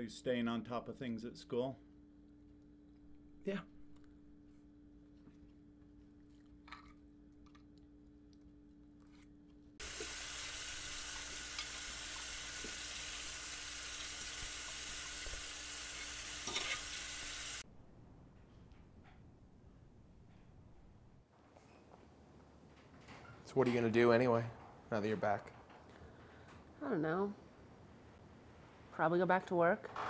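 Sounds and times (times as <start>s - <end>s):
tap water running into sink: 9.8s - 17.6s.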